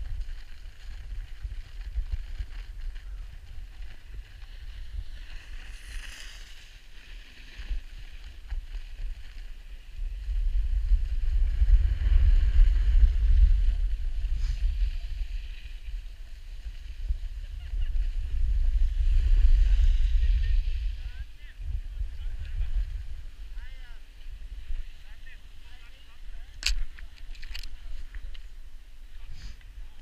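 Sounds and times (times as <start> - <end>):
skis sliding on snow: 0.0 - 30.0
wind buffeting microphone: 7.6 - 25.0.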